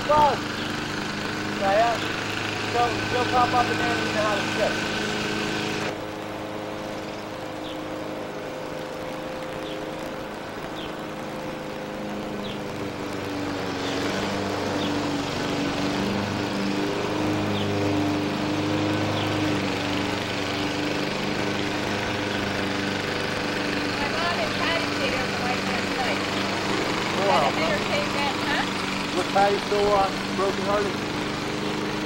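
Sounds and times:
engine running: 0.0 - 32.0.

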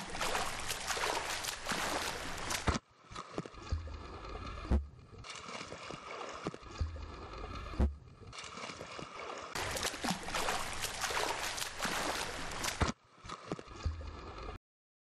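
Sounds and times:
pool water splashing: 0.0 - 14.6
dull low thump: 4.7 - 4.9, 7.8 - 8.0.

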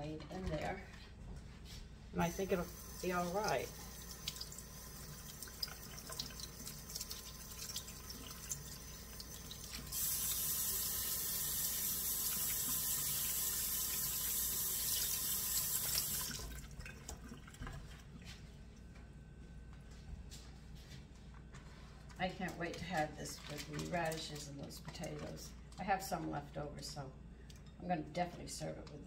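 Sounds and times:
faucet water running into sink: 2.3 - 17.8.

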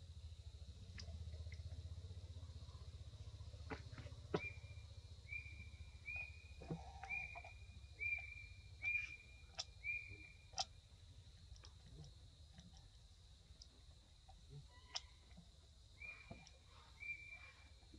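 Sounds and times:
animal whistled call: 4.3 - 10.5, 16.0 - 17.7
faint clicks: 11.4 - 15.5.

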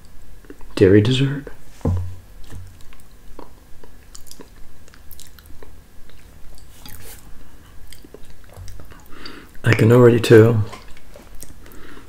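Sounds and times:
mouth smacks while eating: 2.7 - 9.8.

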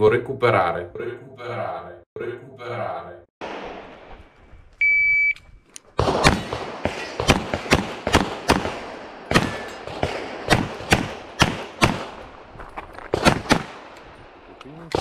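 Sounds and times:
shot timer beep: 4.8 - 5.4
pistol shots: 6.0 - 12.4, 13.1 - 15.0.

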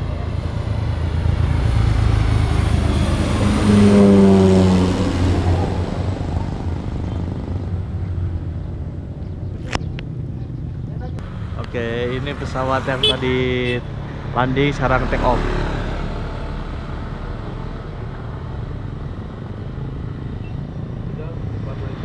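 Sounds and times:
propeller plane passing overhead: 0.0 - 22.0.

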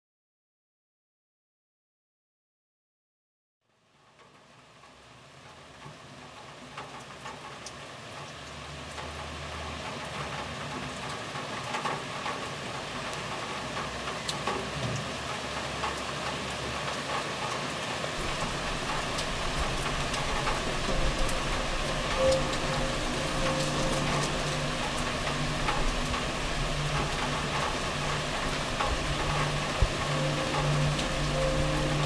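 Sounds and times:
sharp ticks and crackles: 5.4 - 32.0
low traffic rumble: 8.5 - 32.0
steady hiss: 17.7 - 32.0.

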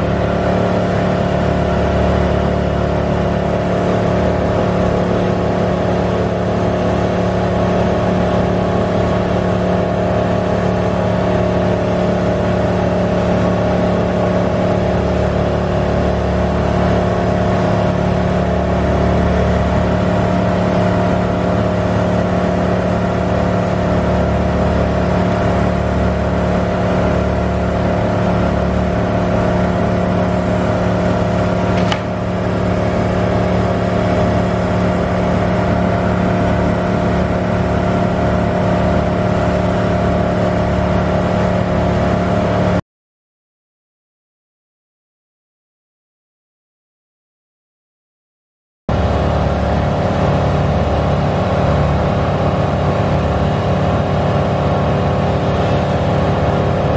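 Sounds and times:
truck engine running steadily: 0.0 - 42.8, 48.9 - 56.9
sharp click: 31.8 - 32.1.

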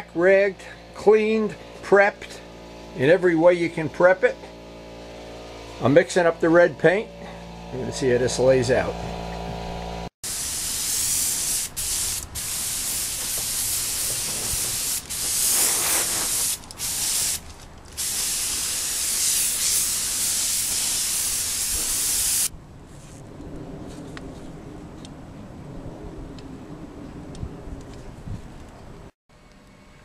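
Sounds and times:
spray gun hissing: 10.2 - 17.4, 18.0 - 22.5.

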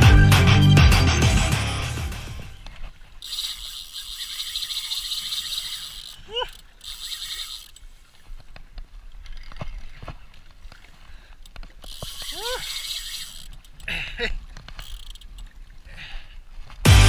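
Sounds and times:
light reel clicks: 2.6 - 9.7, 11.3 - 13.9, 14.5 - 15.6
fishing reel whirring: 3.2 - 8.2, 11.8 - 13.9, 14.7 - 15.5.

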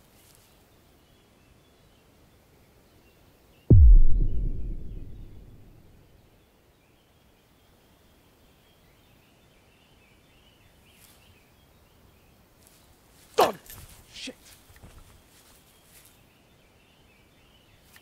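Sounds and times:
sharp downward sweeping sound: 3.7 - 5.8
deep boom: 3.7 - 5.9.

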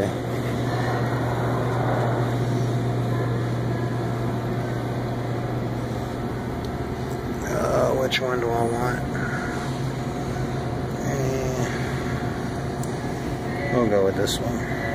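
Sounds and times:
low mechanical hum: 0.0 - 14.9.

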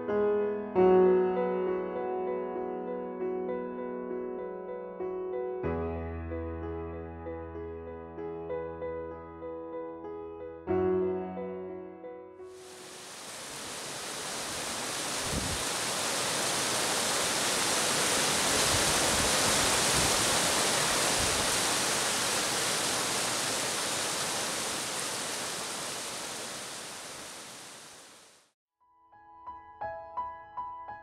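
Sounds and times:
stream rushing over rocks: 12.6 - 28.4.

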